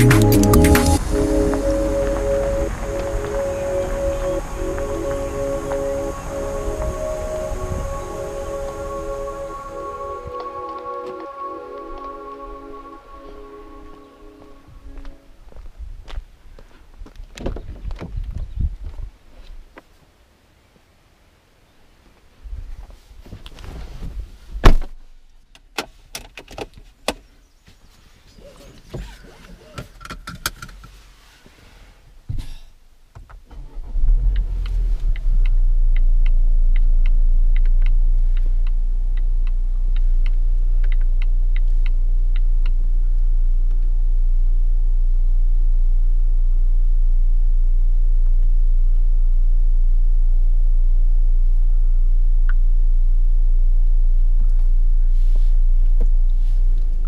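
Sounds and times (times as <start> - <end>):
car engine starting and running: 0.0 - 10.2, 33.4 - 57.0
regular light ticks: 34.3 - 42.8.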